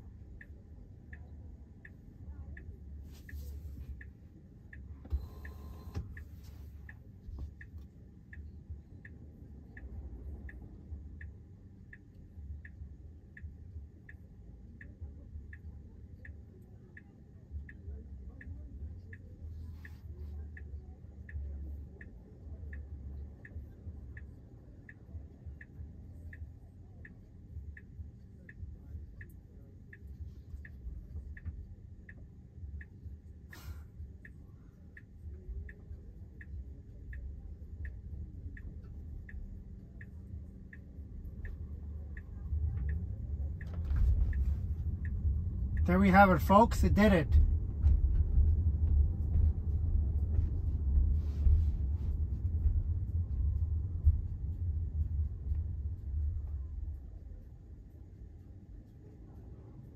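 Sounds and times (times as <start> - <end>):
low cabin hum: 0.0 - 59.9
turn signal ticking: 0.0 - 59.9.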